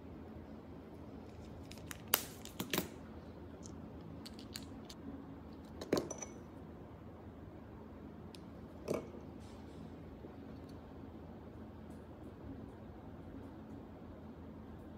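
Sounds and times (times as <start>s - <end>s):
steady low hum: 0.0s - 14.9s
clicks and taps of small objects: 3.6s - 5.0s.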